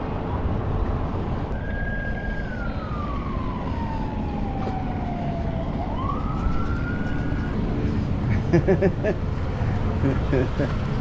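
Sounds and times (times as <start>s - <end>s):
wind: 0.0s - 11.0s
siren wailing: 1.5s - 8.2s.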